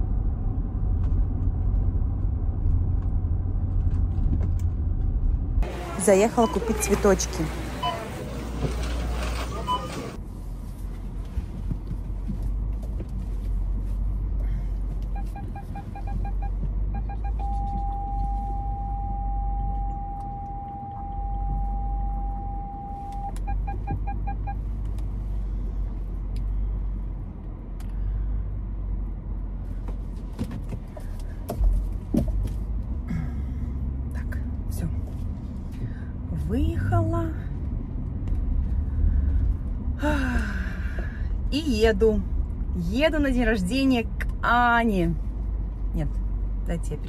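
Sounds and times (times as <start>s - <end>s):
low engine and cabin rumble: 0.0s - 47.0s
parking sensor beeping: 5.6s - 8.2s, 9.4s - 10.2s, 15.1s - 24.7s.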